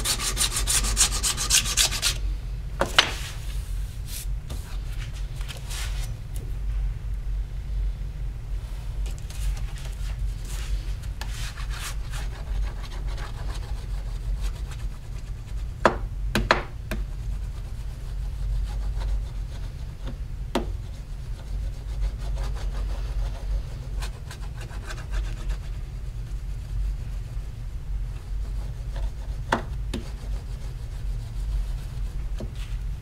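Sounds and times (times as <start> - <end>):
rubbing on metal plate: 0.0 - 2.2
low hum: 0.0 - 14.4, 15.3 - 33.0.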